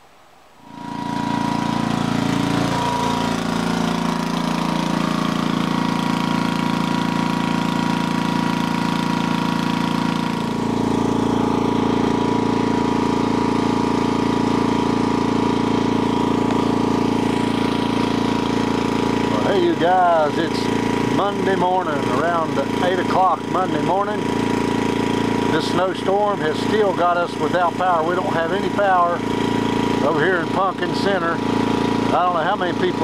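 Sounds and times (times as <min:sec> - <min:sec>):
portable generator engine running: 0:00.6 - 0:33.0.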